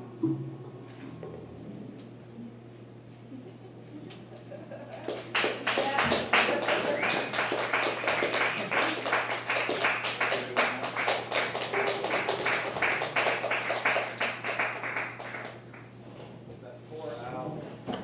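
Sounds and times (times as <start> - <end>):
rapid tapping or clapping: 5.0 - 15.9.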